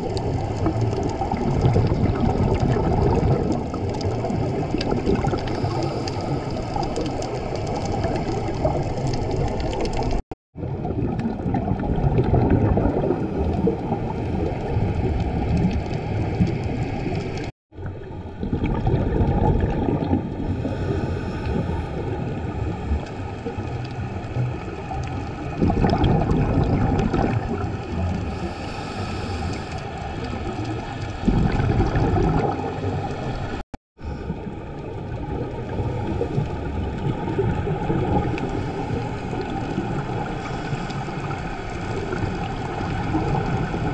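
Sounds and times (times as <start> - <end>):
underwater regulator breathing: 5.5 - 7.1, 20.4 - 22.4, 28.1 - 30.4.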